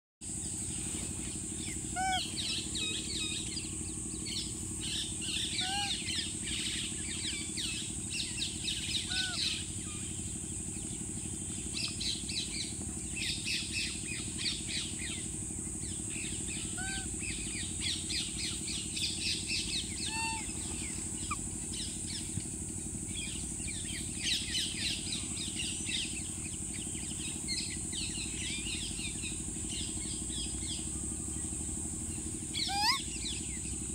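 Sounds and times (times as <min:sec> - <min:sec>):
birds chirping: 0:00.3 - 0:33.9
rising squeaky bird calls: 0:01.3 - 0:10.2, 0:16.2 - 0:22.3, 0:32.5 - 0:33.5.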